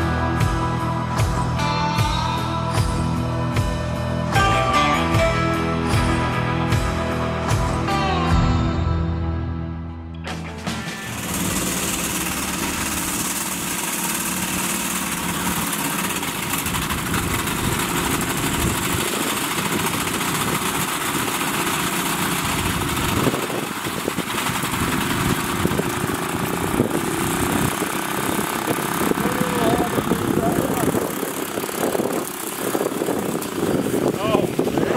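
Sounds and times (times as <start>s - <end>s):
small engine running: 0.0s - 8.0s, 10.4s - 34.9s
burning grass crackling: 11.1s - 34.9s.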